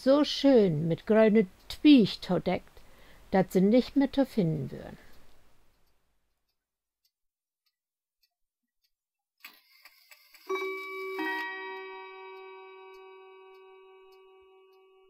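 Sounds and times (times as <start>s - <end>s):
bell-like chime strikes: 10.4s - 15.0s.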